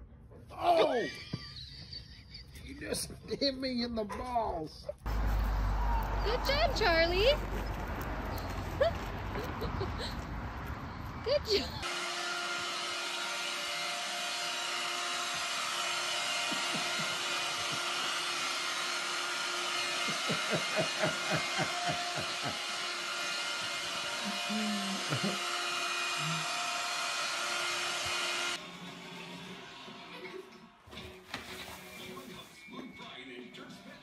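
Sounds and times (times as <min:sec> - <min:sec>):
floor cleaner motor humming: 0:11.8 - 0:30.2
cleaner head knocking: 0:15.3 - 0:18.2.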